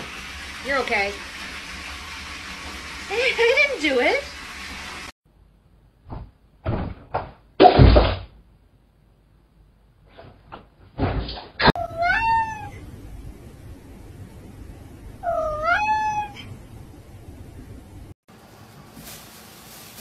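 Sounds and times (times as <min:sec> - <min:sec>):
rustling thump: 0:10.1 - 0:11.7, 0:18.9 - 0:20.0
cat meowing: 0:11.8 - 0:12.8, 0:15.2 - 0:16.5.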